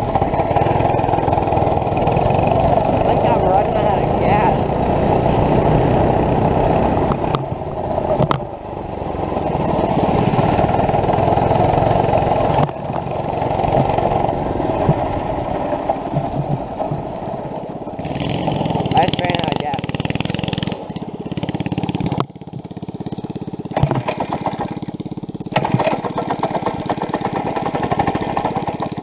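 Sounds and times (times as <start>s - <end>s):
small gas engine running: 0.0s - 29.0s
knocks and rattles: 10.4s - 29.0s.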